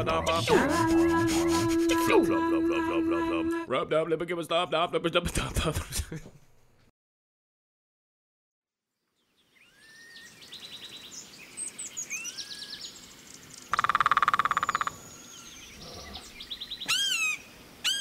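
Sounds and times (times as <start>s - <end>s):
animal calls chirps and whistles: 13.8s - 18.0s.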